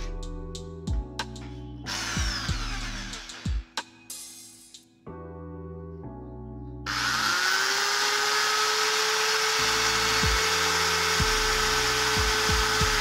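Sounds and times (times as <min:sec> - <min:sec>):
background music: 0:00.0 - 0:07.6, 0:09.2 - 0:13.0
electric drill drilling metal: 0:01.9 - 0:03.6, 0:06.9 - 0:13.0.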